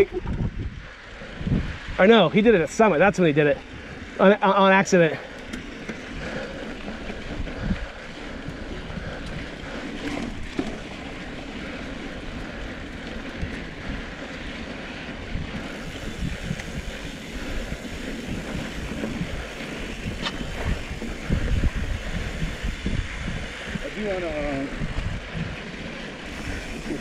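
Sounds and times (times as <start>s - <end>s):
bike tyres on dirt trail: 0.0s - 27.0s
wind rushing over microphone: 0.0s - 27.0s
bike thumps: 20.1s - 21.2s.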